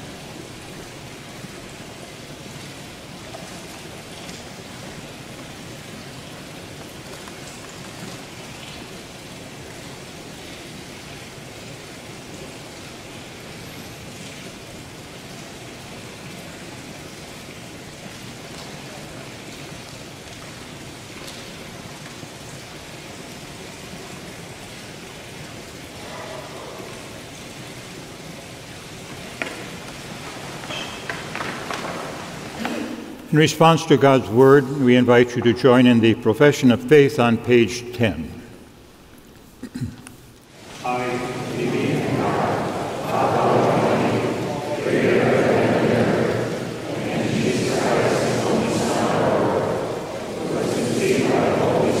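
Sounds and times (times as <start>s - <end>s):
room tone hiss: 0.0s - 52.0s.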